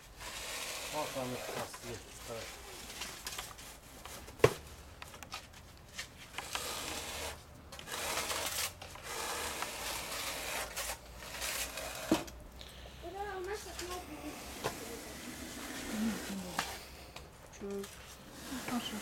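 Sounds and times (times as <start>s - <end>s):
steel trowel scraping adhesive: 0.2s - 2.8s, 6.4s - 12.3s, 13.8s - 16.9s, 18.3s - 19.0s.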